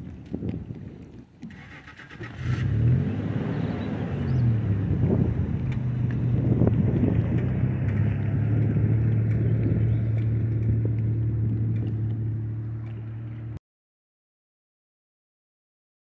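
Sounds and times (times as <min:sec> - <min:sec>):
engine hum: 0:01.4 - 0:13.6.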